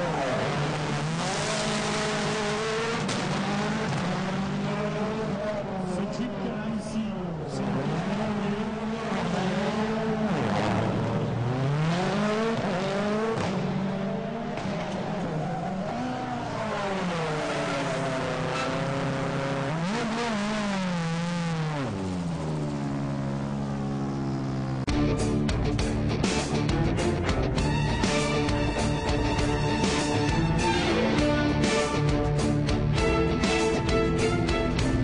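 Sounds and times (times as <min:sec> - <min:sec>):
rally car engine revving: 0:00.0 - 0:35.0
tyre squeal: 0:15.3 - 0:19.2
music: 0:24.9 - 0:35.0.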